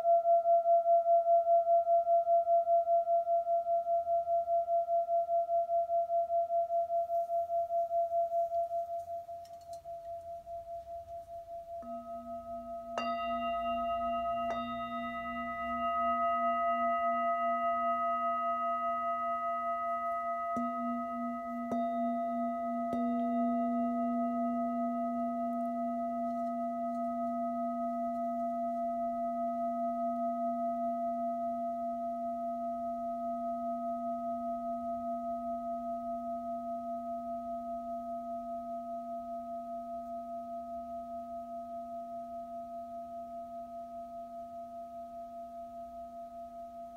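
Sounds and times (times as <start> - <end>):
singing bowl ringing: 0.0 - 46.9
mallet striking bowl: 11.8 - 31.5.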